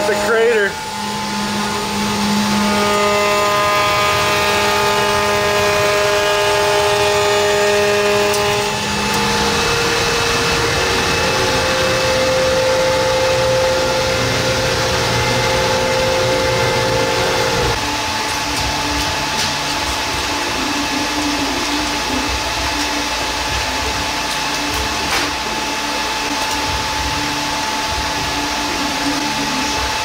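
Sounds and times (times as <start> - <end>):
router spindle machine whine: 0.0 - 19.4.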